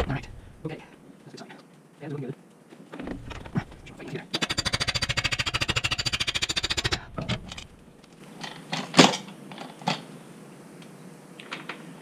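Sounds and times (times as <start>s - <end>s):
ratchet wrench clicking: 4.4s - 7.7s.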